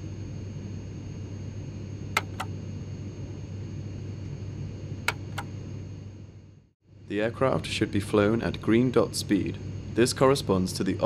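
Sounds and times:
sharp switch clicks: 2.2s - 2.5s, 5.1s - 5.5s.

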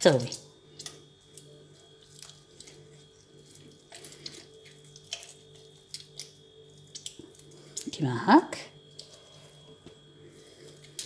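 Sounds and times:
steady low hum: 0.0s - 11.0s
wet clicks of hands kneading dough: 3.5s - 7.4s.

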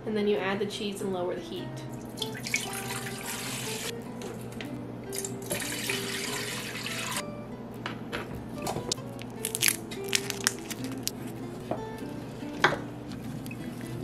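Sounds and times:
water pouring into metal pot: 2.2s - 3.8s, 5.4s - 7.2s.

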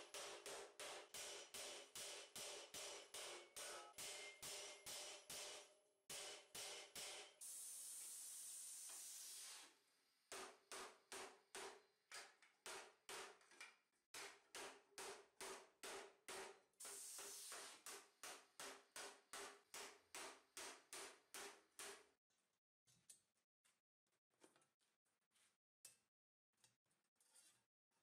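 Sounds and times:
hammer striking steel plate: 0.0s - 7.4s
steady hiss: 7.4s - 9.8s.

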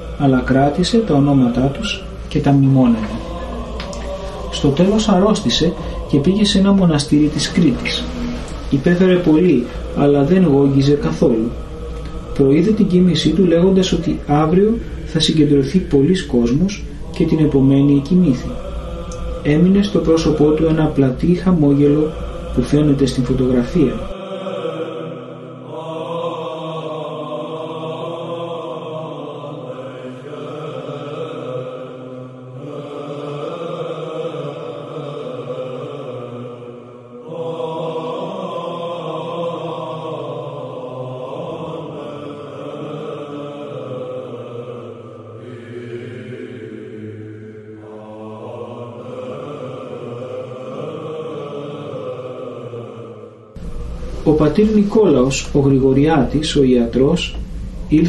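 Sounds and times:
sustained drone note: 0.0s - 24.7s, 53.6s - 58.0s
voices chanting: 0.0s - 58.0s.

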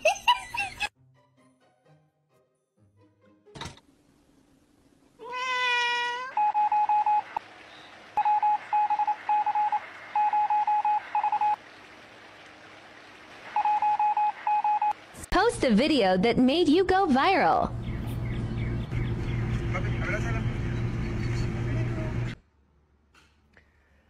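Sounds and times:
cat meowing: 5.2s - 6.4s.

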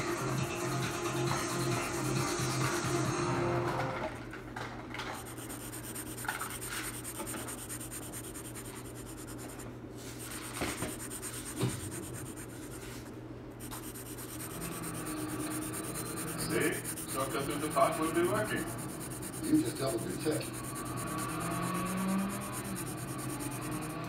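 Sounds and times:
felt-tip marker scratching on paper: 5.2s - 24.0s.

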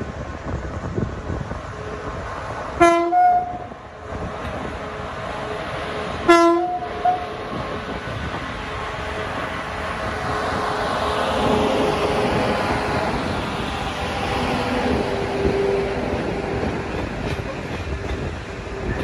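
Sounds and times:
train rumble: 0.0s - 19.0s
locomotive horn two-note calls: 2.8s - 3.7s, 6.3s - 7.3s.

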